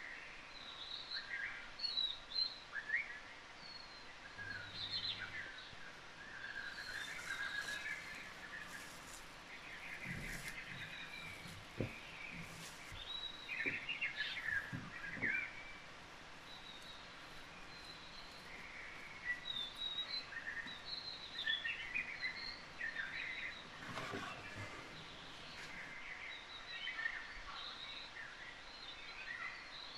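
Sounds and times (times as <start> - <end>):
small birds chirping: 0.0 - 29.9
steady outdoor hiss: 0.0 - 29.9
soft low thumps: 6.7 - 21.0.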